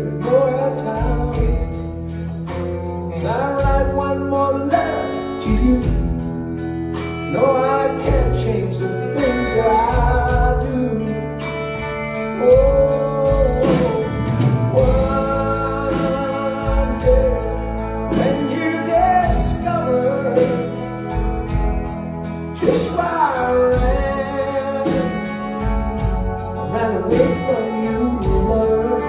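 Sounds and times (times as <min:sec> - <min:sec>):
bending lead guitar melody: 0:00.0 - 0:29.0
country-rock band playing: 0:00.0 - 0:29.0.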